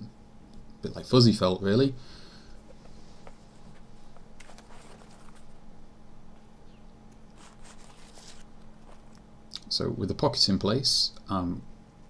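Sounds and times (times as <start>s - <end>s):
low steady hum: 0.0s - 12.0s
hands rustling fabric: 2.6s - 5.6s, 7.3s - 9.3s.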